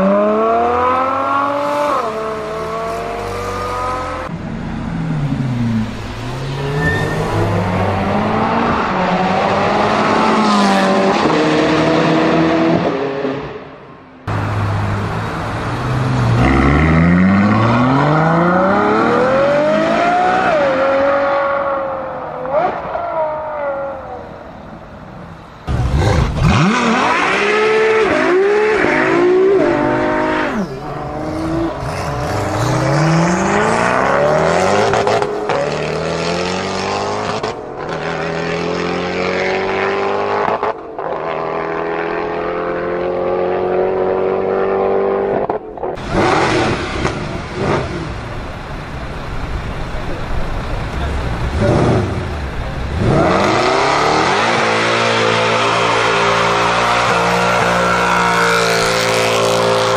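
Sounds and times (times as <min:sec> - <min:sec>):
car engine revving: 0:25.7 - 0:48.9, 0:49.7 - 0:59.9.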